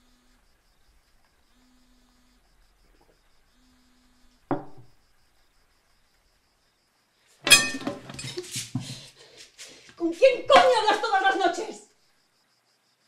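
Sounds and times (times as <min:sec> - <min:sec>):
phone vibrating on table: 0:01.5 - 0:05.0
glass set down on table: 0:04.5 - 0:04.9, 0:07.5 - 0:08.3.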